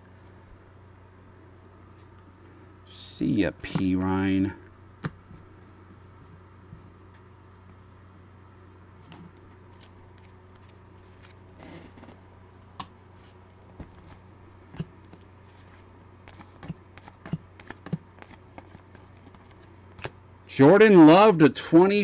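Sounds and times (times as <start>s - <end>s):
steady low hum: 0.0s - 22.0s
card rustle: 9.0s - 12.2s, 15.1s - 20.1s
cards being flipped: 9.0s - 12.2s, 14.8s - 20.1s.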